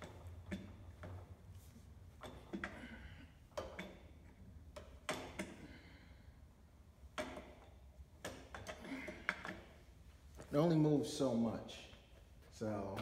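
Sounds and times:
metal clicks and knocks: 0:07.1 - 0:09.7.

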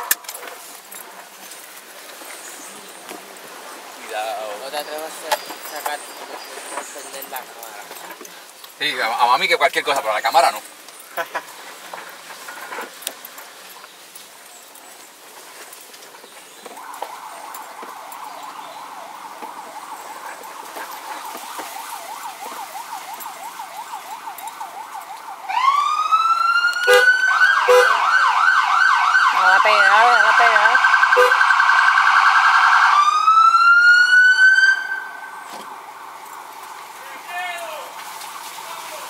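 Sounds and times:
electronic vehicle siren: 0:16.7 - 0:37.3, 0:37.9 - 0:39.0.

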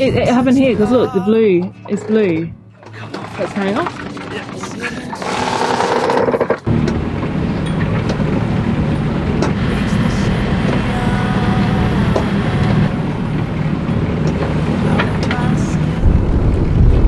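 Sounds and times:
boat engine droning: 0:00.0 - 0:17.0
cloth rubbing on hull: 0:02.9 - 0:06.7
wind and water rushing: 0:05.2 - 0:17.0.

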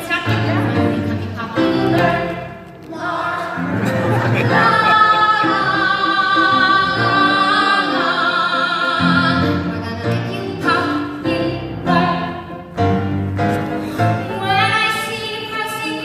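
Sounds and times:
piano chords: 0:00.0 - 0:16.0
soprano singing with vibrato: 0:04.4 - 0:12.6.

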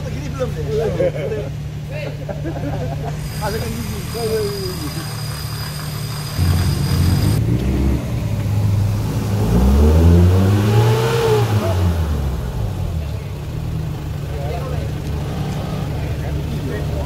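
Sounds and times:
engine revving hard: 0:03.2 - 0:13.1, 0:14.8 - 0:17.0.

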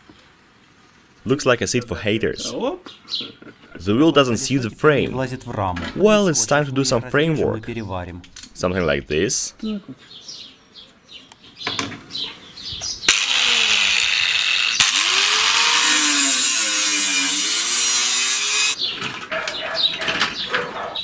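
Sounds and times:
angle grinder cutting steel: 0:13.1 - 0:18.8.

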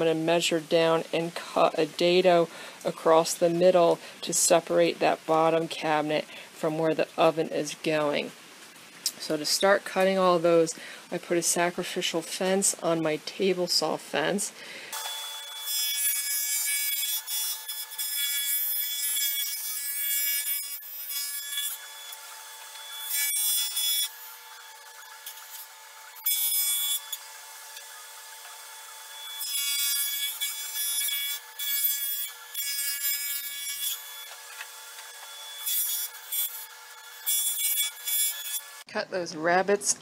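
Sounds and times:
table saw whine: 0:14.9 - 0:38.9
saw cutting plywood: 0:15.0 - 0:38.8.

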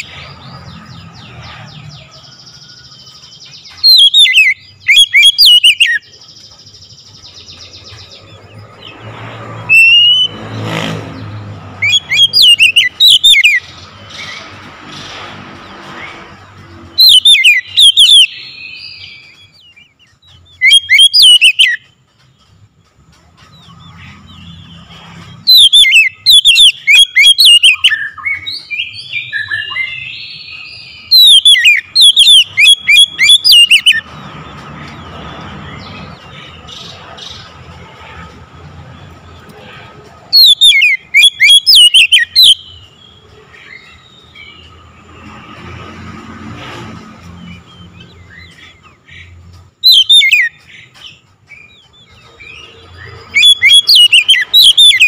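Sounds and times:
bird singing whistled phrases: 0:03.8 - 0:06.1, 0:09.7 - 0:10.4, 0:11.8 - 0:13.6, 0:17.0 - 0:19.5, 0:20.5 - 0:21.8, 0:25.5 - 0:34.0, 0:40.4 - 0:42.9, 0:49.8 - 0:50.6, 0:53.0 - 0:55.0.

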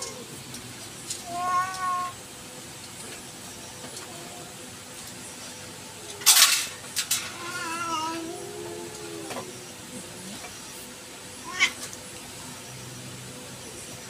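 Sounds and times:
cat meowing: 0:01.2 - 0:02.2, 0:07.3 - 0:09.5, 0:11.4 - 0:11.8.

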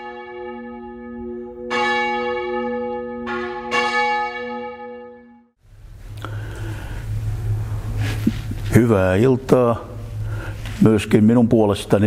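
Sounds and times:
church bells ringing: 0:00.0 - 0:05.5.

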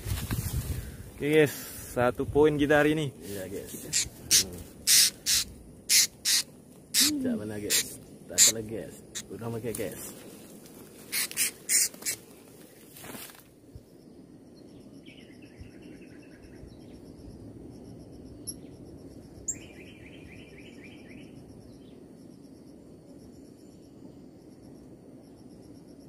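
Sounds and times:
insects pulsing calls: 0:00.0 - 0:26.0
buzzy insect pulses: 0:01.1 - 0:15.2
sharp high chirps: 0:03.9 - 0:09.3, 0:11.1 - 0:12.2.

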